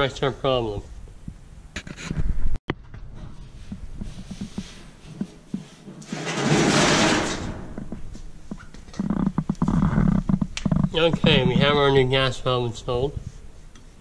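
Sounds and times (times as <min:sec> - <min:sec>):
rustling scrape: 0:01.8 - 0:02.5, 0:03.1 - 0:08.1.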